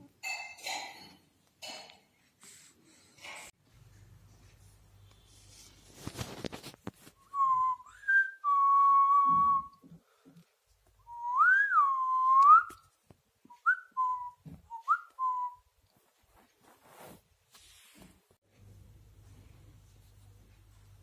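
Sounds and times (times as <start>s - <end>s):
person whistling: 7.3s - 9.8s, 11.1s - 12.8s, 13.5s - 15.6s.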